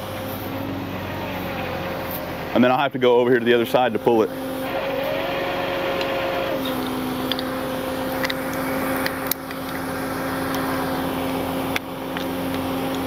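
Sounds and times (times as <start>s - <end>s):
hydraulic pump whine: 0.0s - 13.0s.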